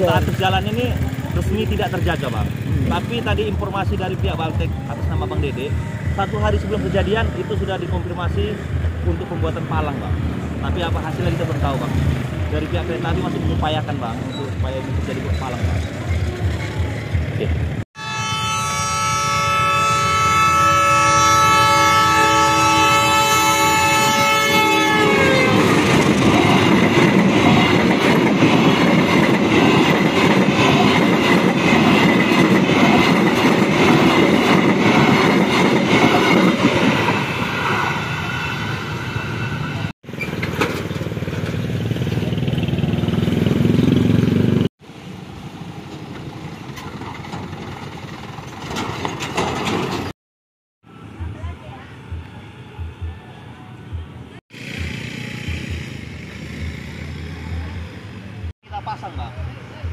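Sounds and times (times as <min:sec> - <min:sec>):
train wheels rumbling on rails: 0:00.0 - 0:17.8, 0:21.0 - 0:44.7, 0:45.7 - 0:50.1
train horn blast: 0:18.0 - 0:26.0.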